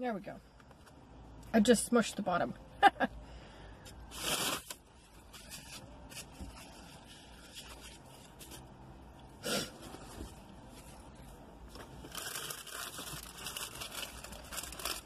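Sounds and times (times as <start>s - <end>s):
person sniffing: 9.4s - 9.8s
food packaging rustling: 9.8s - 15.0s.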